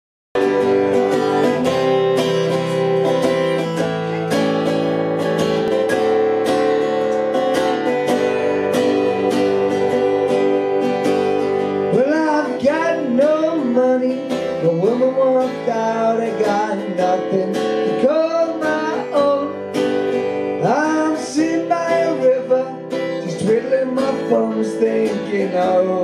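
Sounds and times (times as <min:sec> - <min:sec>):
man singing: 0:00.4 - 0:04.7, 0:11.8 - 0:26.0
acoustic guitar strumming: 0:00.4 - 0:26.0.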